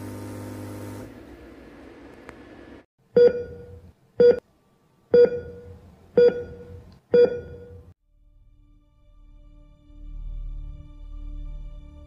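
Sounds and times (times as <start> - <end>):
heart monitor beeps: 3.2 - 4.4, 5.2 - 7.9.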